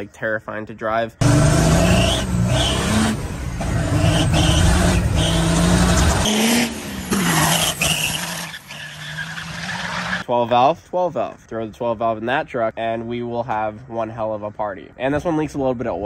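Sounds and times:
diesel engine at full throttle: 1.2s - 8.7s.

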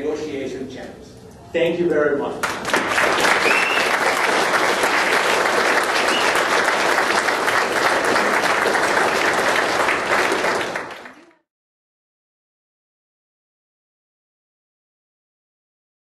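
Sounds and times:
audience applauding: 2.4s - 11.4s.

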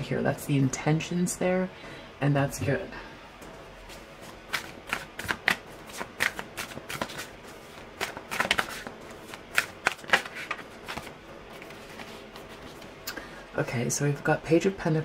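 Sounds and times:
cards being shuffled: 3.9s - 13.0s.

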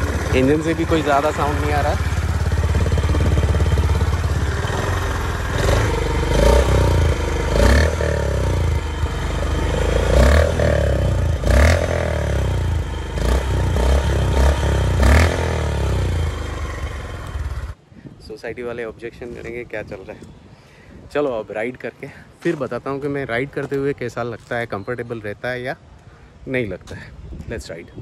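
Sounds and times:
motorcycle engine revving: 0.0s - 17.8s.

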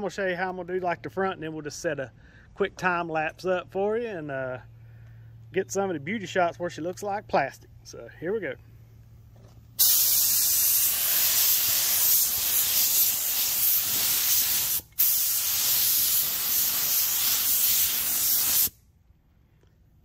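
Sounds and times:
paint spray gun hissing: 9.8s - 18.8s.

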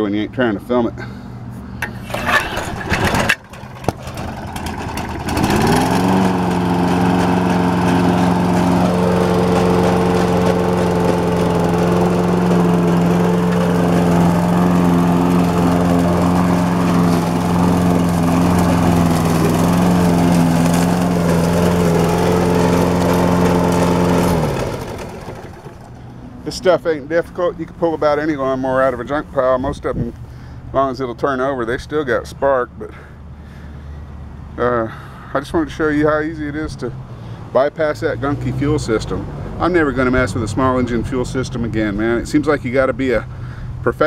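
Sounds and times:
engine pull-start: 1.8s - 6.7s
lawn mower engine running: 1.8s - 28.9s.

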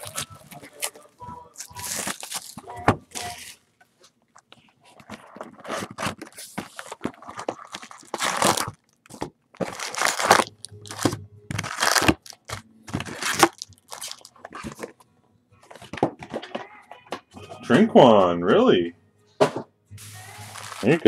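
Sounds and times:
foil packs crinkling: 0.0s - 3.6s, 4.8s - 14.9s, 20.0s - 21.0s
cardboard box tearing: 5.4s - 8.7s, 9.6s - 12.4s, 13.0s - 14.3s.

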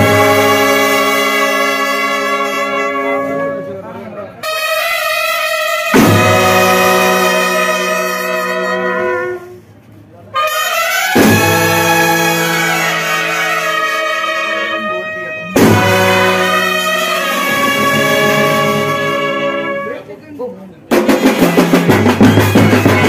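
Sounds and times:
brass band playing held chords: 0.0s - 9.7s, 10.3s - 20.2s, 20.9s - 23.0s
drum and cymbal crash: 5.9s - 7.3s, 11.1s - 12.5s, 15.5s - 19.2s, 20.9s - 23.0s.

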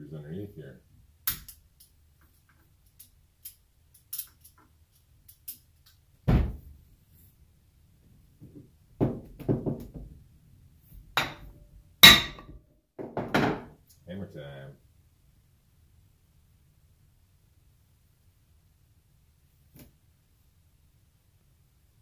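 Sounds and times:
heavy thump: 6.3s - 6.7s
metal housing knocking on workbench: 11.2s - 13.7s.

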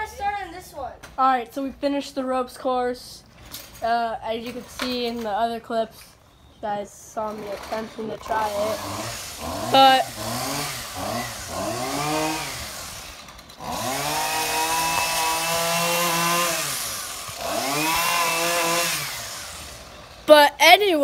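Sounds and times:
small engine revving: 7.3s - 20.3s.

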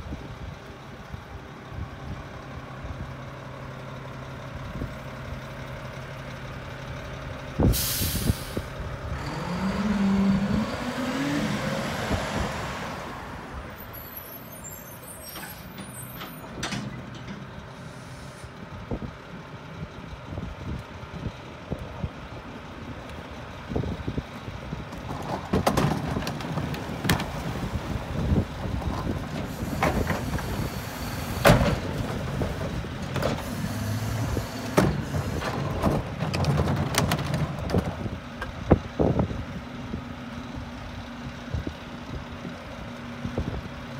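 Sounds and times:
garbage truck diesel engine: 0.0s - 43.9s
air brake hiss: 7.7s - 8.7s, 17.8s - 18.5s
metal clanks and rattles: 15.3s - 17.8s, 24.9s - 27.4s, 34.8s - 38.5s.

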